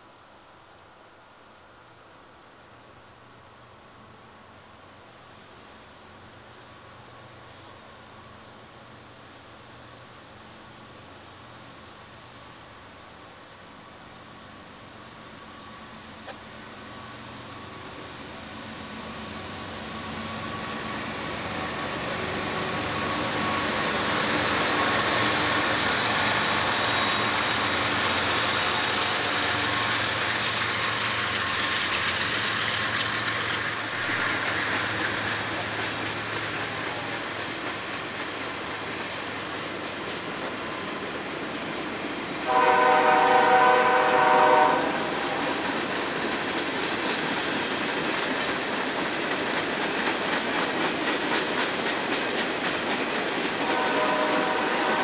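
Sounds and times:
train wheels clattering on rails: 18.7s - 55.0s
locomotive air horn: 42.5s - 45.4s, 53.6s - 55.0s.

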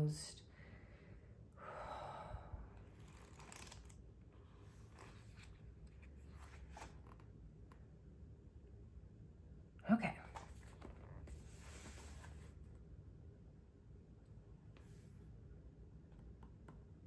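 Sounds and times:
book pages being flicked: 3.0s - 4.0s.

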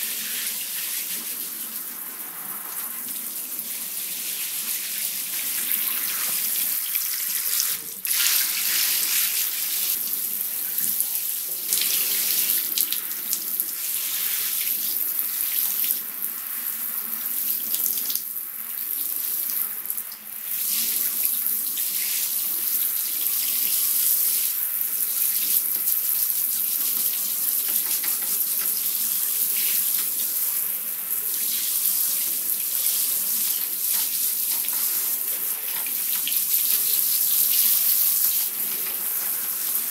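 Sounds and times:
shower head spraying water: 27.0s - 30.4s, 33.4s - 39.9s.

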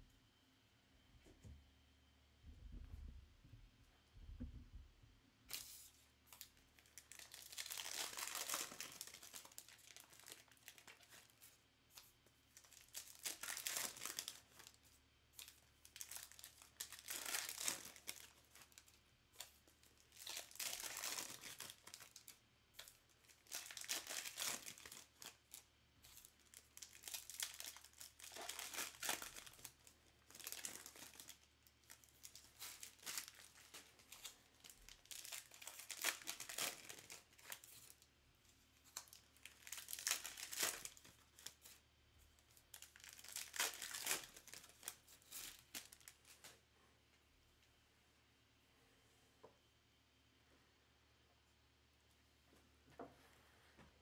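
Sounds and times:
wrappers tearing and crinkling: 5.5s - 38.1s, 38.8s - 41.8s, 42.4s - 46.6s.

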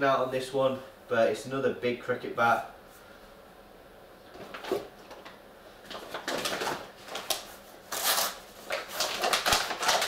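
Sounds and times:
plastic and cardboard rustling: 4.3s - 10.0s.

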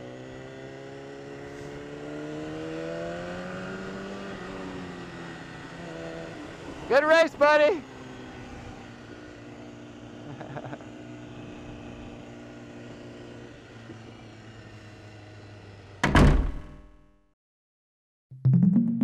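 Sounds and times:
motorcycle engine running at low revs: 0.0s - 17.2s
loud thump with ringing tail: 16.0s - 16.9s.

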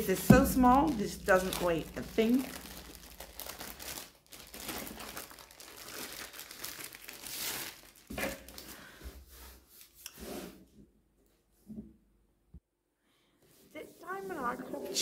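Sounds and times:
plastic sleeve crinkling: 0.0s - 8.8s.

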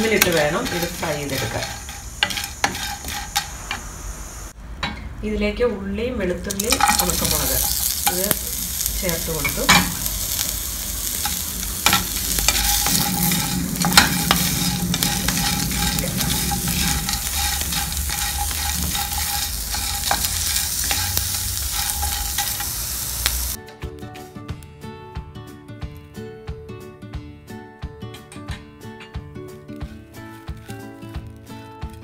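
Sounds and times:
wooden spatula scraping pan: 0.0s - 3.9s, 6.7s - 23.6s
food sizzling in frying pan: 0.0s - 4.6s, 6.5s - 23.6s
acoustic guitar music: 23.6s - 32.0s.

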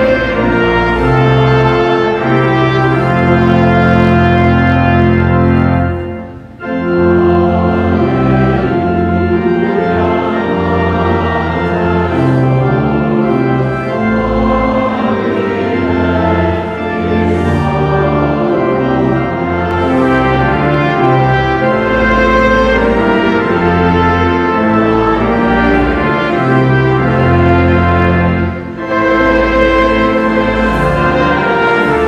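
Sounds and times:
church organ playing a hymn: 0.0s - 32.0s
voices singing: 7.0s - 32.0s.

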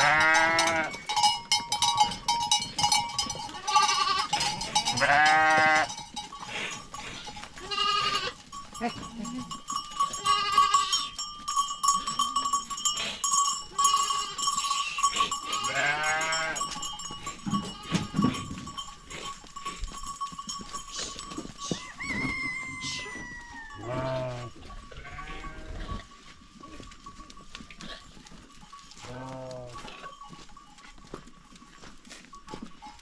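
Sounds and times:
goats bleating: 0.0s - 1.1s, 3.3s - 6.0s, 7.0s - 11.2s, 13.8s - 16.8s, 17.4s - 18.6s, 21.7s - 26.0s
small bells ringing and clinking: 0.0s - 33.0s.

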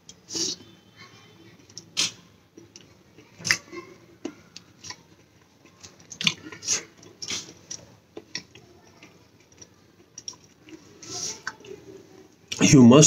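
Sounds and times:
man chewing: 0.0s - 0.8s, 1.6s - 11.9s
lip smacks and clicks: 1.6s - 11.8s.

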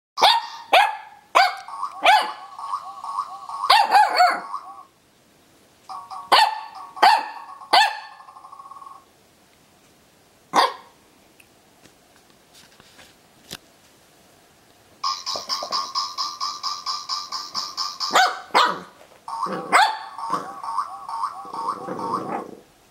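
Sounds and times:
puppy barking in high yaps: 0.2s - 2.5s, 3.6s - 4.7s, 6.3s - 8.2s, 10.5s - 11.0s, 18.1s - 20.5s
warbling dog toy tone: 1.6s - 4.9s, 19.3s - 22.6s.

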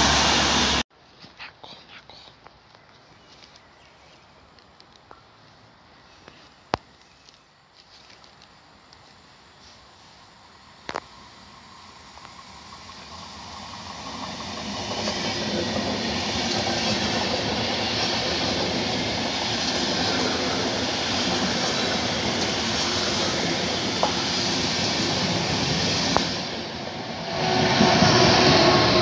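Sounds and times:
passing train rumble and hiss: 0.0s - 0.8s, 7.7s - 29.0s.

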